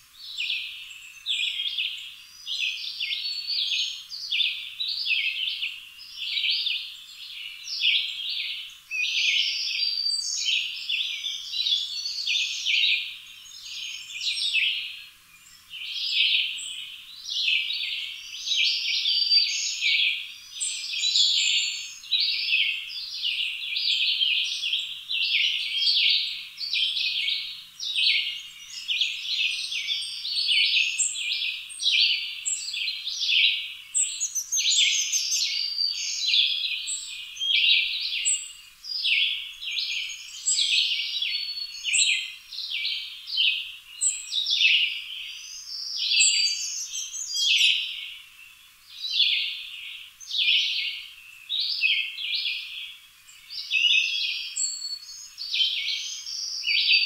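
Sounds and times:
birds chirping: 0:20.6 - 0:57.0.

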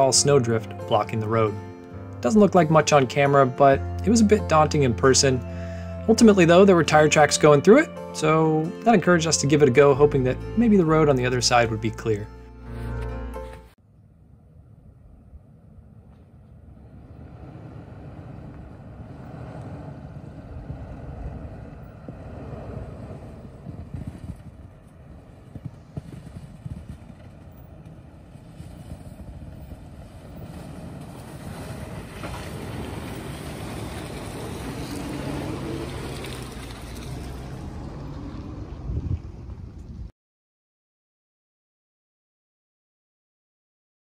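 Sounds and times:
suv engine at low speed: 0:13.8 - 0:40.1.

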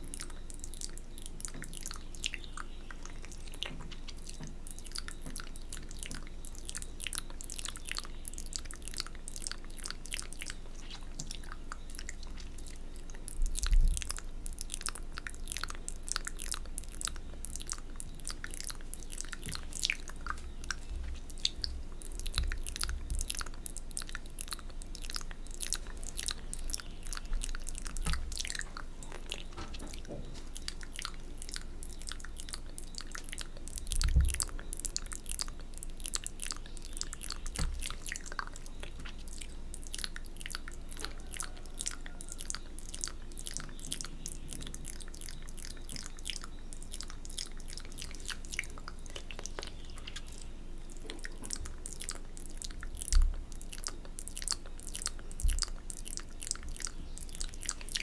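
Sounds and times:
wet mouth sounds: 0:00.0 - 0:58.0
soft low thumps: 0:33.9 - 0:34.6.

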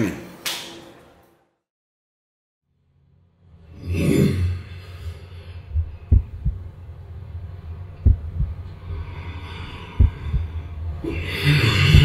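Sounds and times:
low hum: 0:02.7 - 0:12.0
heartbeat thumps: 0:05.7 - 0:06.8, 0:07.9 - 0:08.8, 0:09.9 - 0:11.0, 0:11.8 - 0:12.0.

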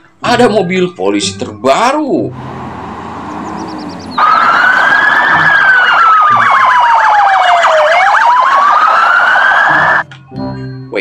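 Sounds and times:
police siren wailing: 0:01.6 - 0:10.0
warbling siren tone: 0:02.4 - 0:10.0.

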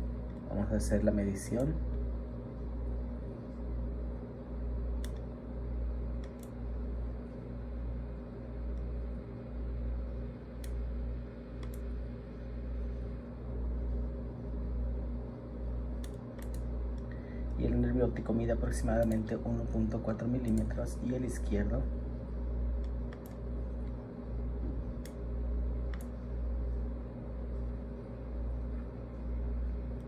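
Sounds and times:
pulsing low machine hum: 0:00.0 - 0:30.0
computer mouse clicks: 0:05.0 - 0:05.3, 0:06.2 - 0:06.6, 0:10.6 - 0:10.8, 0:11.5 - 0:11.9, 0:16.0 - 0:17.1, 0:18.9 - 0:19.3, 0:20.4 - 0:20.8, 0:22.8 - 0:24.0, 0:25.9 - 0:26.2.

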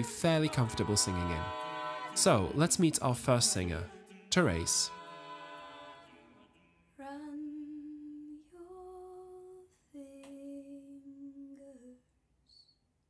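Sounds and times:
woman singing softly: 0:07.0 - 0:12.1.

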